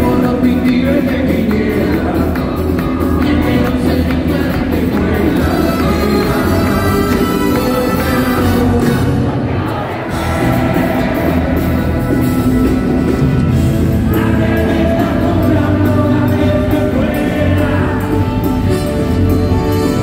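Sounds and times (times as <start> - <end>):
person singing lead vocals: 0.0 - 11.9, 13.8 - 20.0
rock band playing live: 0.0 - 20.0.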